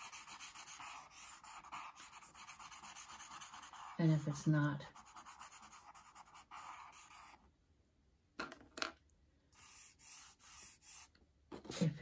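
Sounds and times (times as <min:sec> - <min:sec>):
charcoal scratching on paper: 0:00.0 - 0:07.4, 0:09.6 - 0:11.2.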